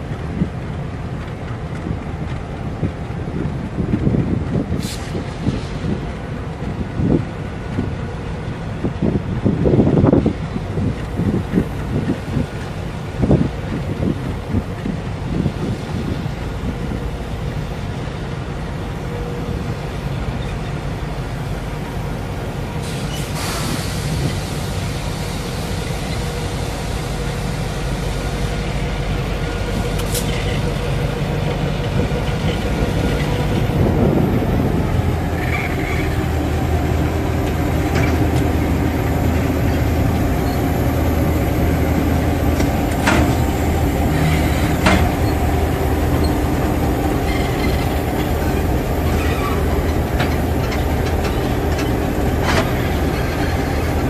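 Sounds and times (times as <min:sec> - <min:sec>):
diesel locomotive engines: 0:00.0 - 0:54.0
short hiss: 0:22.8 - 0:25.8.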